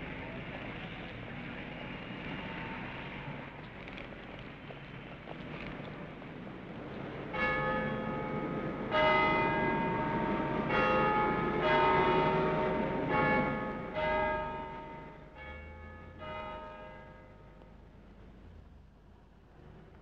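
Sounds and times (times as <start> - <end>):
church bells ringing: 7.2 - 18.0.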